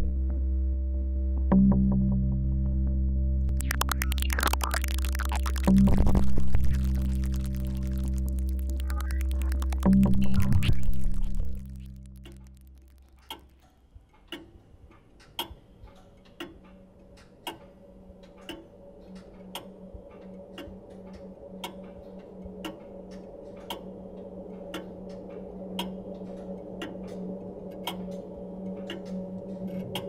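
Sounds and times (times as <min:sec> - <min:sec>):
music: 0:00.0 - 0:13.3, 0:18.2 - 0:30.0
low steady hum: 0:00.0 - 0:13.5
clock ticking: 0:03.6 - 0:13.6.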